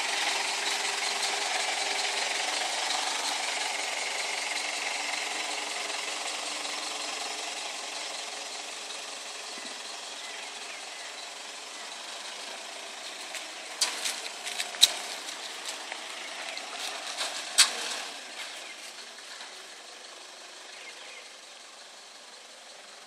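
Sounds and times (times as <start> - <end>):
truck engine at low revs: 0.0 - 23.0
sharp knocks and cracks: 13.1 - 19.0.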